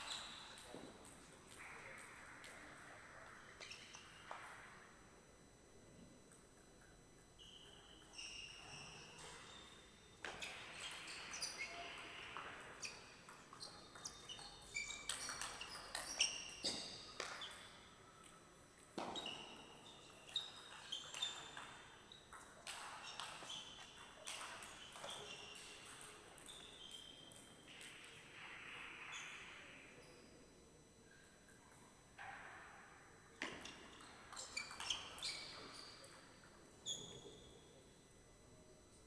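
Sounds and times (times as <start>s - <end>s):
shoes squeaking on floor: 3.6s - 4.6s, 7.4s - 12.2s, 12.8s - 17.6s, 19.0s - 21.6s, 23.0s - 27.8s, 33.4s - 36.1s.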